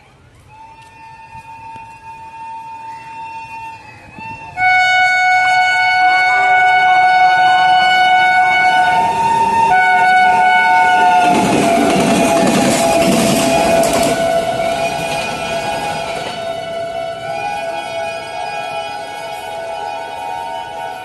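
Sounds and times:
locomotive horn blast: 4.6 - 21.0.

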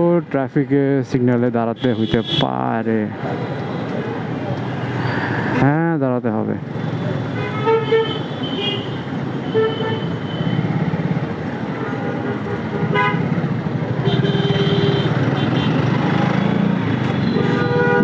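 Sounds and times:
car horns honking: 1.8 - 2.6, 7.3 - 10.7, 11.7 - 13.4, 14.0 - 18.0.

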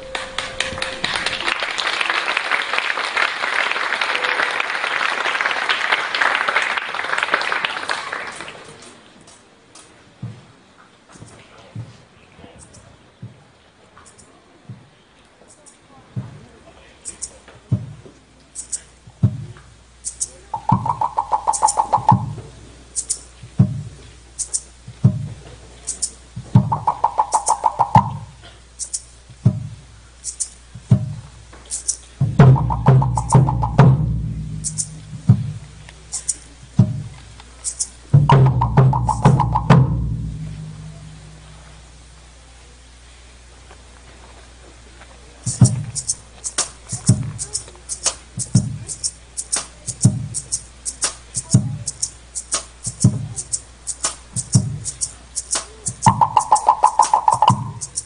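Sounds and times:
audience applauding: 0.0 - 9.1
deep drum beats: 17.7 - 18.0, 19.1 - 22.6, 23.4 - 24.0, 24.8 - 25.5, 26.3 - 28.4, 29.2 - 29.9, 30.6 - 31.5, 32.1 - 42.4, 45.5 - 58.0
wooden slit-drum roll: 19.1 - 42.1, 45.4 - 58.0.

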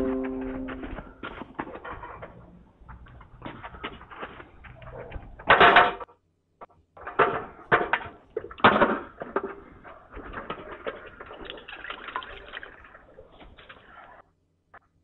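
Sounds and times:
knocks and clatters: 0.0 - 12.0.

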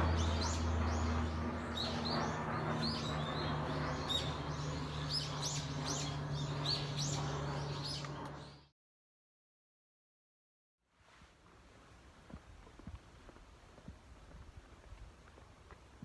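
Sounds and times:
small birds chirping: 0.0 - 8.7.

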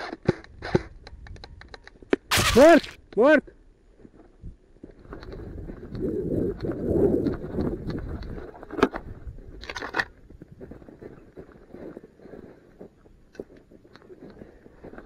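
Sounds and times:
footsteps crunching through snow: 2.3 - 3.0.

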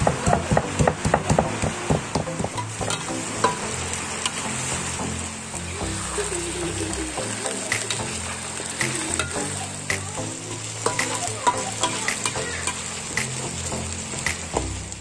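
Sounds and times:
chili paste sizzling in oil: 0.0 - 15.0
metal spatula scraping a wok: 2.6 - 4.8, 10.4 - 13.0.

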